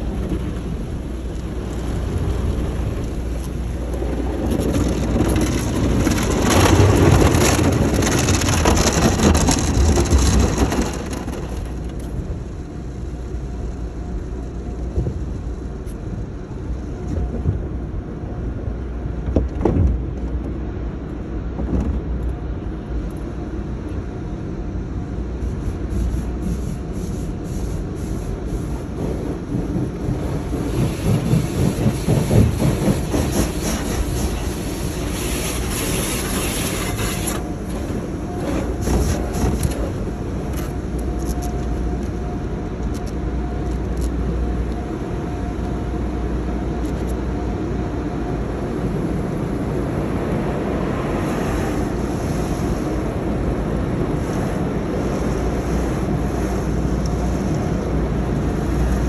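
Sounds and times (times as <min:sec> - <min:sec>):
car wash water spray: 0:00.0 - 0:15.8, 0:25.1 - 0:43.3, 0:48.8 - 0:59.0
faint steady whine: 0:33.8 - 0:59.0.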